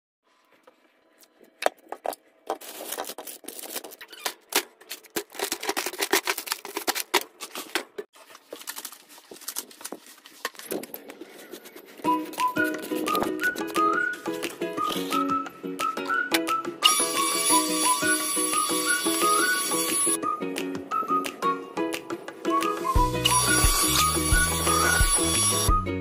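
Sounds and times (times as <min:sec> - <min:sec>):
packages clicking and knocking: 0:01.7 - 0:15.0
plastic bags crinkling: 0:02.5 - 0:13.4.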